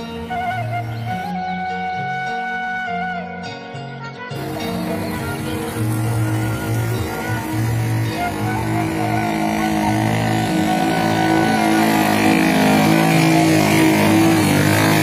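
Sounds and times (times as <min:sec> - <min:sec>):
motorcycle engine approaching: 0:04.4 - 0:15.0.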